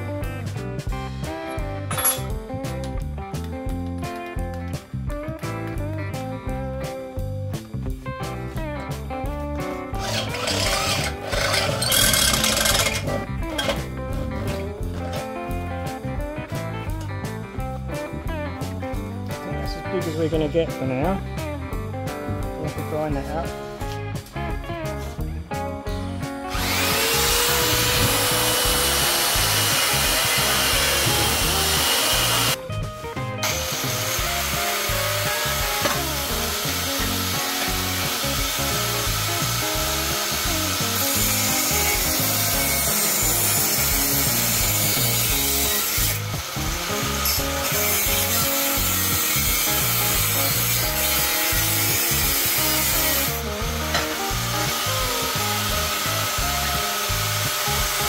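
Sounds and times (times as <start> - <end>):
power grinding on steel pipe: 10.0 - 13.9, 26.5 - 32.6, 33.4 - 58.0.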